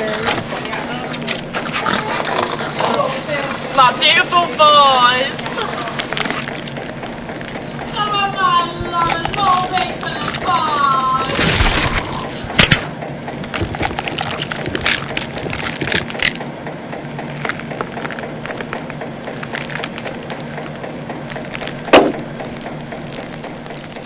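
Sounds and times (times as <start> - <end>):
cracking and crackling: 0.0 - 24.0.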